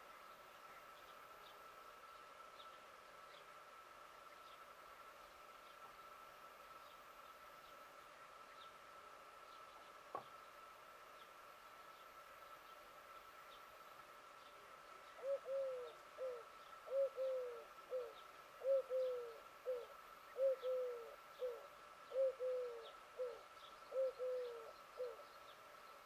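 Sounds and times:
dove cooing: 15.2 - 25.3.

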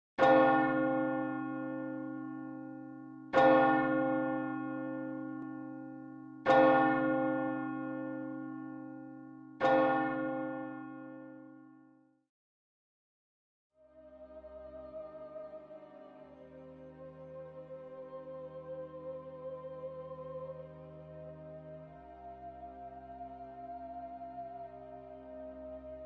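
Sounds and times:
church bell tolling: 0.2 - 12.0.

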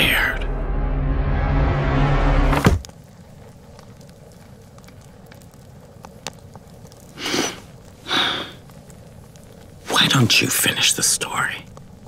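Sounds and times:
soft thump: 2.5 - 2.9.

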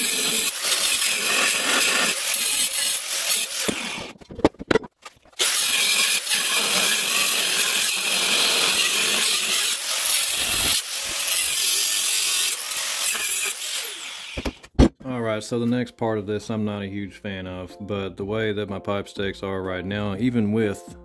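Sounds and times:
angle grinder cutting steel pipe: 0.0 - 4.1, 5.4 - 14.6.

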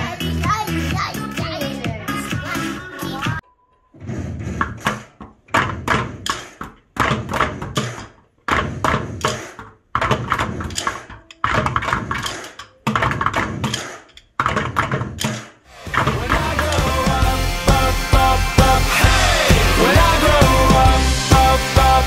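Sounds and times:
children drumming on plastic buckets: 4.8 - 22.0.

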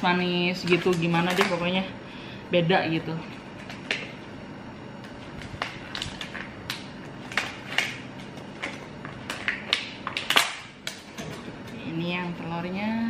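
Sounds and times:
plastic packaging crinkling: 4.9 - 11.2.

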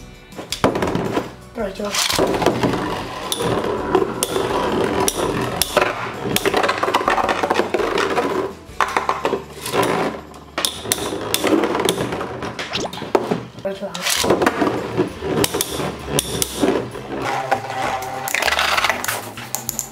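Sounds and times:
spinning tops clacking together: 18.2 - 19.9.

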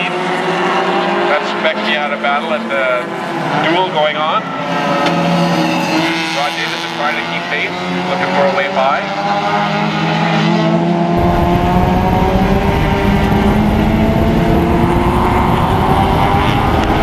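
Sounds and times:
race car engine accelerating: 0.0 - 17.0
loud low rumble: 11.2 - 17.0.

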